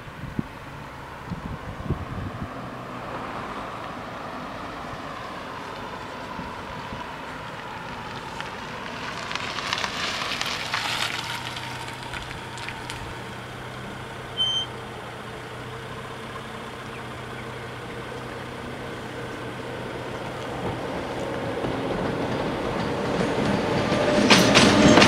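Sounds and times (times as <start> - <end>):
car engine idling: 0.0 - 23.9
short high-pitched beep: 14.4 - 14.7.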